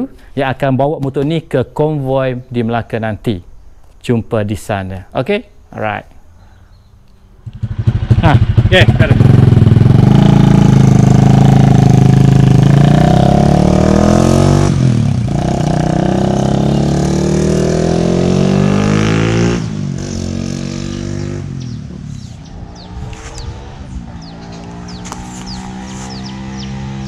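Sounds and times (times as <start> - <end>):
motorcycle engine accelerating: 7.4 - 27.0.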